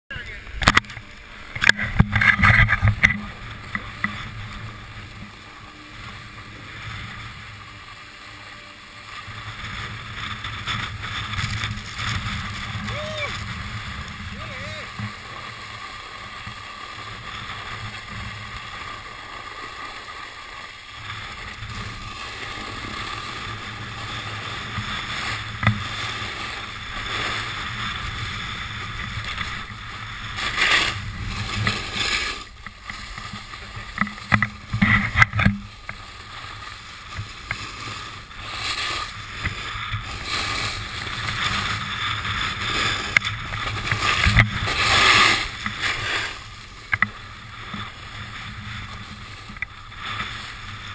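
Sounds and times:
ski edges scraping over snow: 0.1 - 50.9
wind on microphone: 9.5 - 15.4.

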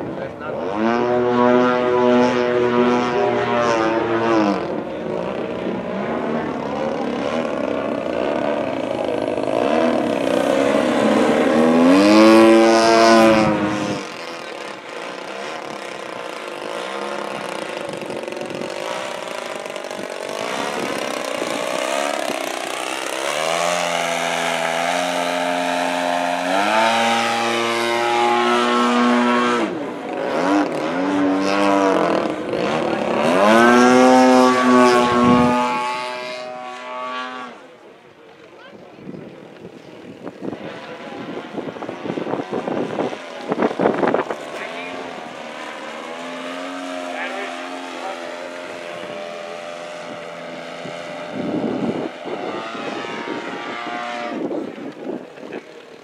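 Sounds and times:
model plane engine and propeller: 0.0 - 56.0.

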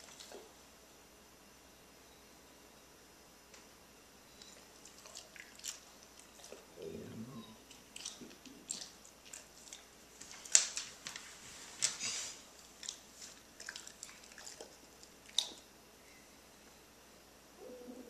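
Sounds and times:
dog licking and chewing: 4.4 - 6.8, 7.6 - 15.7.

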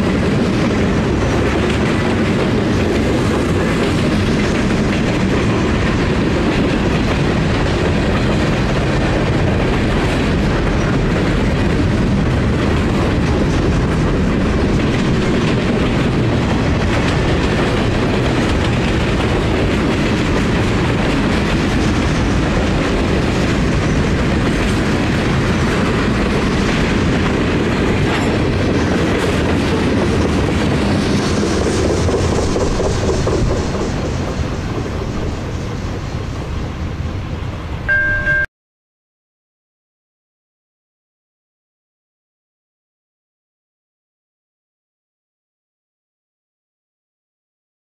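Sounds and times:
steel wheels clacking over rail joints: 0.0 - 37.5
freight train rolling past: 0.0 - 38.4.

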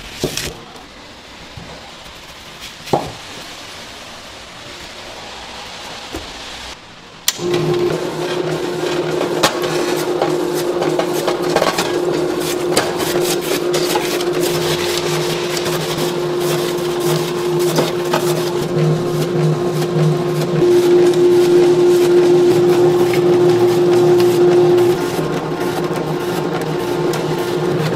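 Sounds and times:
electric slicer motor humming: 7.3 - 27.9.

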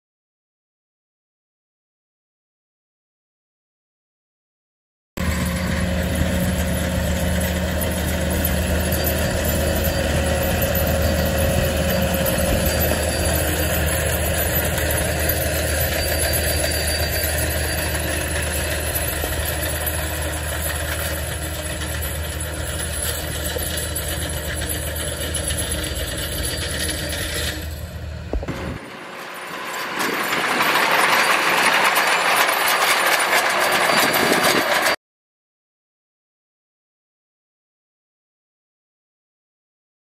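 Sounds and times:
tractor diesel engine running: 5.2 - 35.0.

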